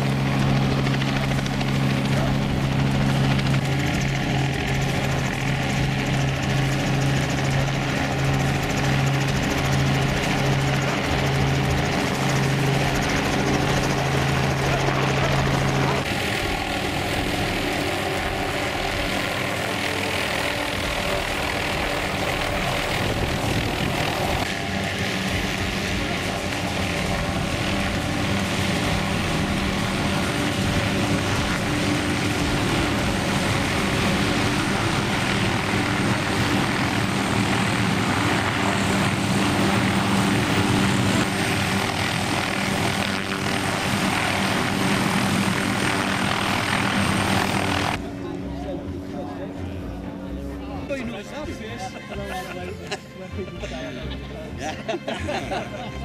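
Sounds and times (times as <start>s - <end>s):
helicopter hovering: 0.0s - 56.0s.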